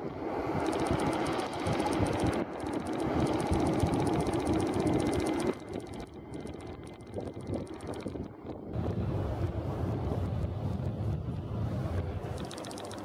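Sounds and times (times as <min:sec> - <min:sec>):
machine engine ticking and humming: 0:00.4 - 0:08.9, 0:12.2 - 0:13.0.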